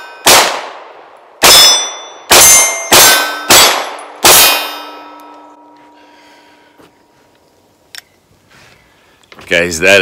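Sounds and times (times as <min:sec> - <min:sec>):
steel targets ringing: 0:00.0 - 0:00.4, 0:01.4 - 0:06.6
pistol shots: 0:00.0 - 0:05.1.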